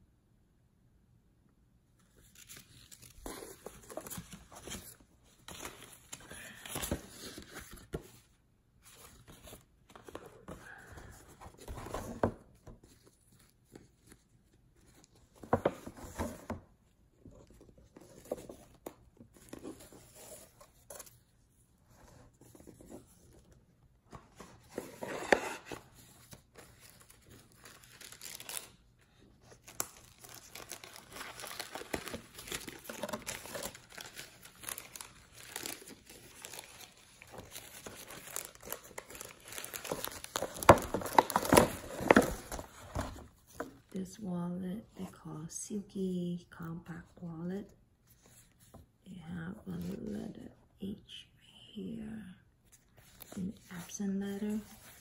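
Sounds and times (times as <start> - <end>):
paper rustling and crinkling: 2.0 - 16.6, 24.1 - 43.9, 52.7 - 55.0.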